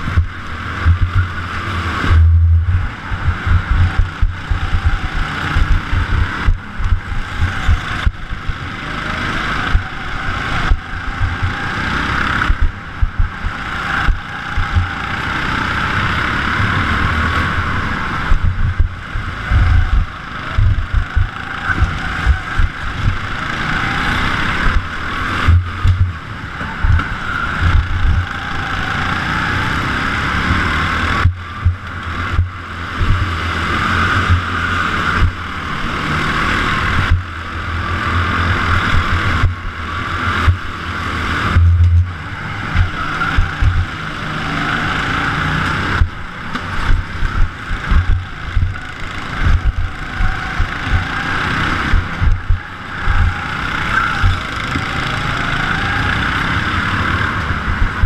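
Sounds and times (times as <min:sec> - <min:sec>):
go-kart motor revving: 0:00.0 - 0:58.0
wind buffeting microphone: 0:02.0 - 0:08.7, 0:09.7 - 0:15.0, 0:18.1 - 0:23.4, 0:24.6 - 0:28.3, 0:41.4 - 0:44.0, 0:46.0 - 0:51.2, 0:51.8 - 0:54.7, 0:57.5 - 0:58.0.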